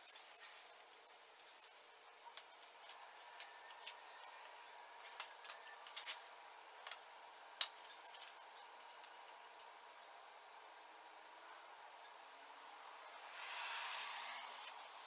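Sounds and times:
small objects clicking and tapping: 0.0 - 6.2.

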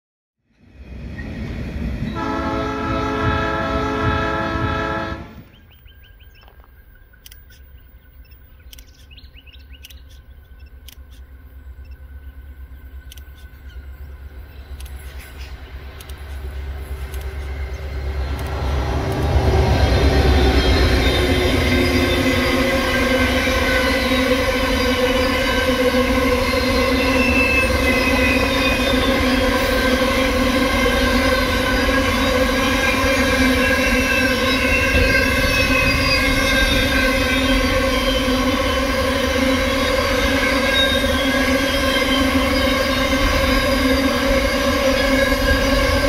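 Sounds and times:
freight train rumbling past: 0.5 - 6.2, 9.2 - 46.0
locomotive horn chord: 2.1 - 5.4, 17.0 - 46.0.

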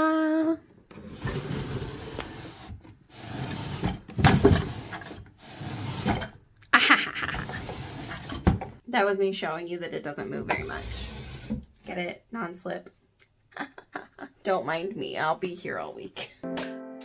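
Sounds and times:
drawer sliding open and shut: 0.9 - 6.4, 7.3 - 8.8, 10.5 - 11.8.

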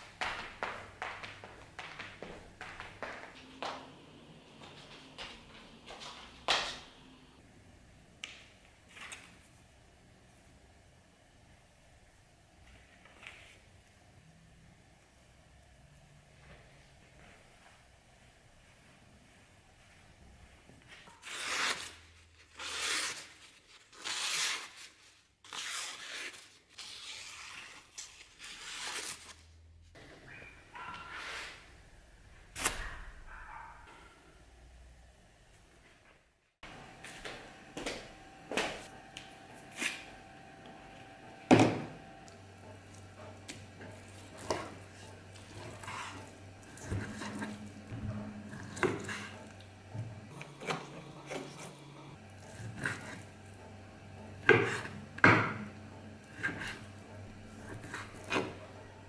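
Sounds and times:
knife slicing through paper: 21.2 - 29.4.

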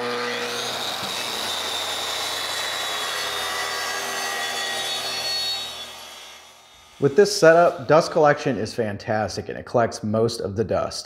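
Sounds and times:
circular saw cutting plywood: 0.0 - 8.4.

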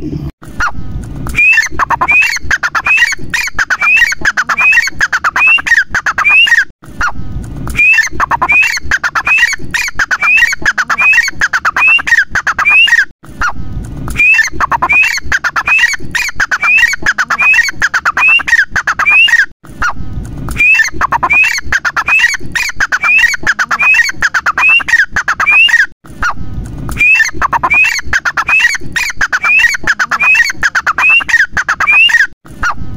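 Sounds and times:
francolin calling: 27.0 - 32.3.

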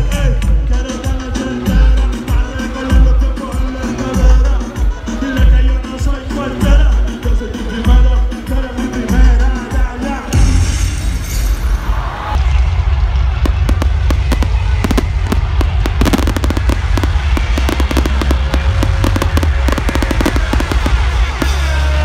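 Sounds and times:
fireworks bangs and crackles: 12.4 - 22.0.

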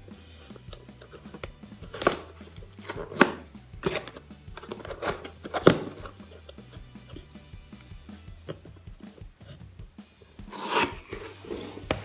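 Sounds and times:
quiet background music: 0.0 - 12.0
box tape tearing: 0.5 - 6.6, 10.5 - 12.0.

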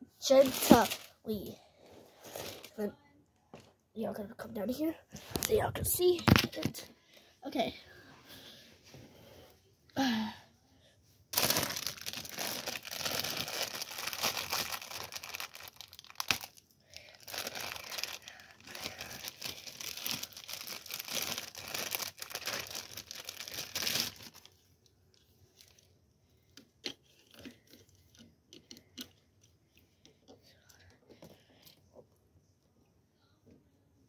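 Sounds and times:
plastic packaging crinkling and tearing: 0.2 - 1.2, 11.3 - 24.6.

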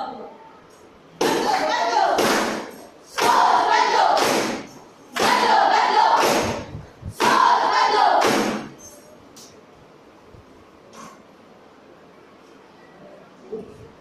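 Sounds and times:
young voices shouting in unison: 5.2 - 6.6, 7.2 - 8.4.

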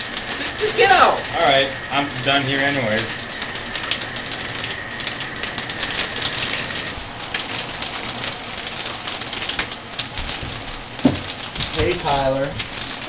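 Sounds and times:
shower spray running: 0.0 - 13.0
faint high tone: 0.4 - 7.0.

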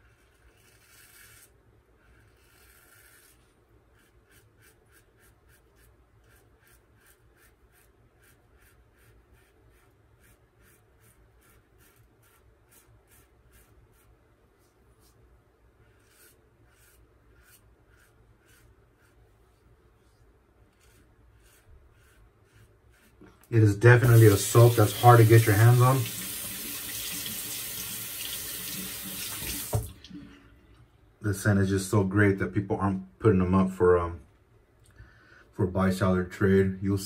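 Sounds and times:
razor scraping stubble: 0.0 - 14.2, 15.8 - 27.6.

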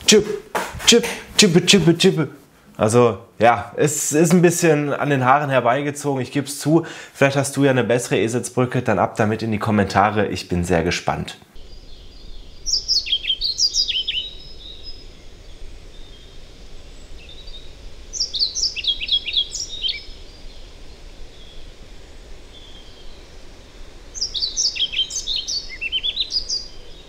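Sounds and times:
bird singing: 11.6 - 27.0.

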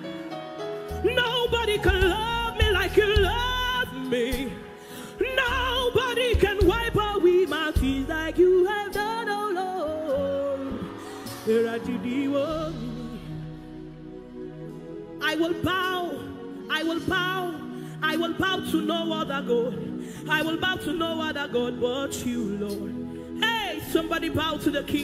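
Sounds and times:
backing band chords and bass: 0.0 - 9.1
woman singing gospel: 1.0 - 13.6, 15.2 - 25.0.

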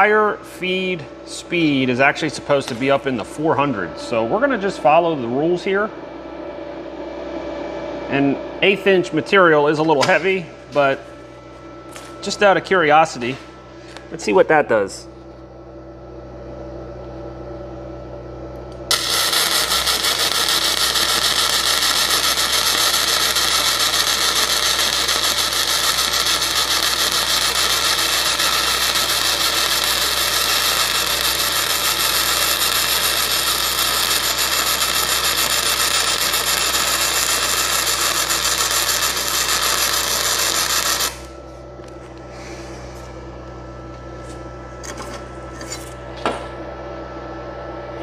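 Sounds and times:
welding arc crackle and hiss: 18.8 - 41.4.

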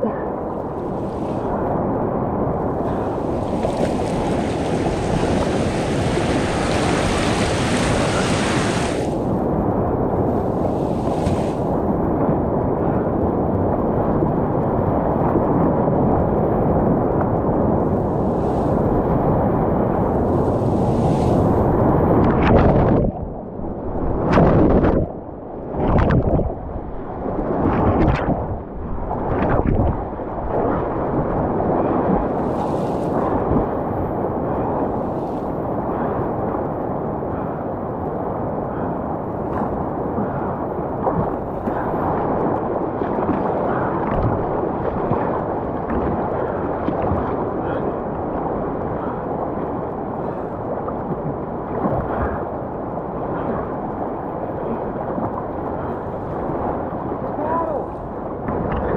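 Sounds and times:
waves splashing over kayak: 0.5 - 12.1, 17.8 - 23.0, 29.2 - 36.6, 38.5 - 58.9
whitewater rapids roaring: 2.9 - 9.2.

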